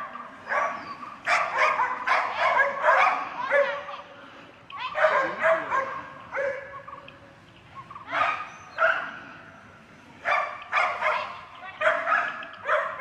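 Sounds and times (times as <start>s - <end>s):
dogs barking: 0.0s - 4.0s, 4.9s - 7.0s, 7.9s - 9.2s, 10.2s - 13.0s.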